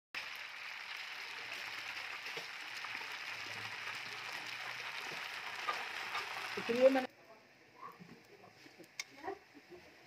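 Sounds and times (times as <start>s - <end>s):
food sizzling in hot oil: 0.2s - 7.1s.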